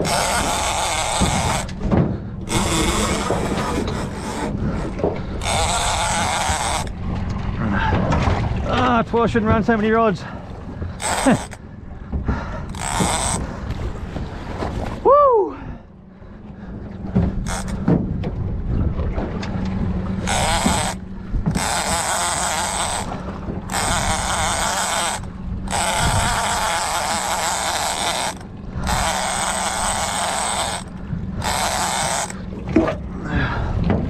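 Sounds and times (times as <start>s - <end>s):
fishing reel buzzing: 0.0s - 1.8s, 2.4s - 7.0s, 11.0s - 11.6s, 12.7s - 13.5s, 17.4s - 17.8s, 20.2s - 32.5s
outboard motor hum: 0.0s - 34.0s.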